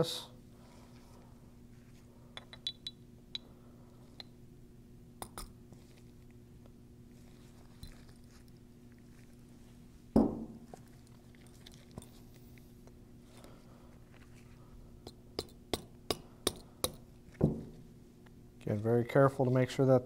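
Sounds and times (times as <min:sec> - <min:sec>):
dull knock: 0:10.2 - 0:10.6.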